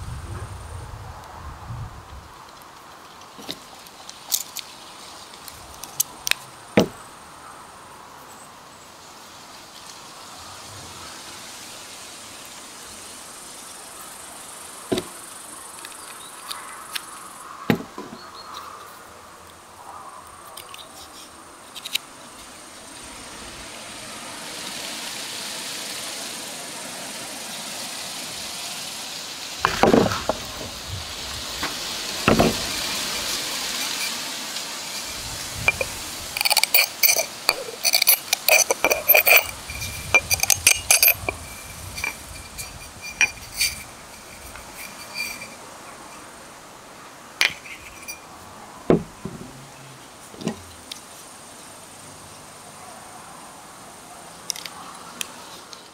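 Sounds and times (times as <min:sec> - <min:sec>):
dull knocks on bottle: 0:06.8 - 0:07.0
metal blade clinking on glass bottle: 0:34.8 - 0:45.6, 0:47.5 - 0:48.2.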